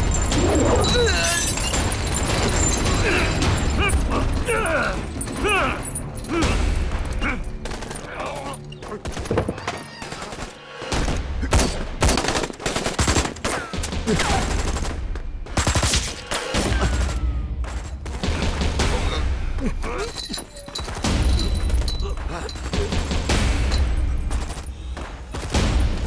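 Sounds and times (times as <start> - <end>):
gunshots: 9.0 - 19.2.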